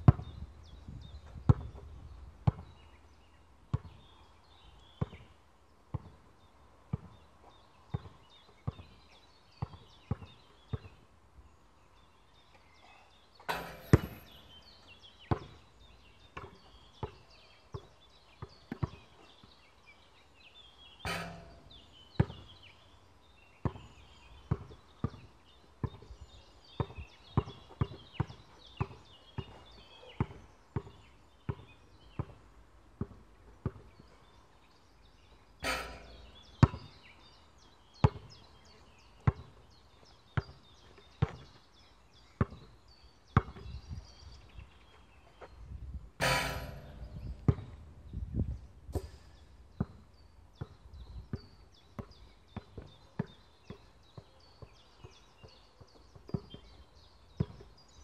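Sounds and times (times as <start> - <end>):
basketball bouncing on hard court: 0.0 - 0.3, 2.4 - 2.8, 13.5 - 14.6, 15.3 - 15.6, 16.3 - 19.0, 21.1 - 22.5, 23.6 - 26.0, 30.2 - 32.4, 35.6 - 37.0, 38.0 - 38.4, 42.4 - 42.7, 43.4 - 43.8, 46.2 - 50.0, 50.6 - 53.9
faint birds chirping: 0.0 - 58.0.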